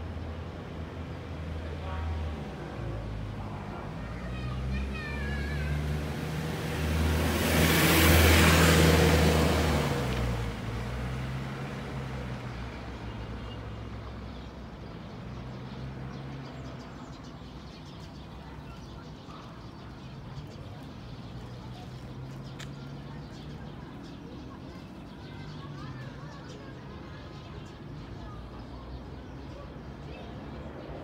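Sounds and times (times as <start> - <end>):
faint street hum: 0.0 - 31.0
vehicle passing by: 2.4 - 13.3.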